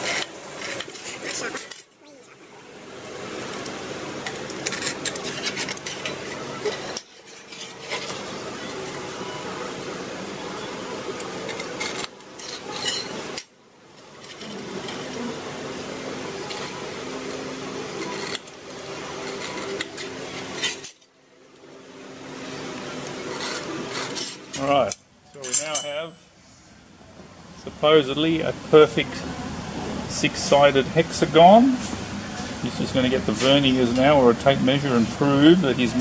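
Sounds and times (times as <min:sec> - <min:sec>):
metal scribe scratching steel plate: 0:04.2 - 0:09.7, 0:11.2 - 0:21.0, 0:23.2 - 0:24.6.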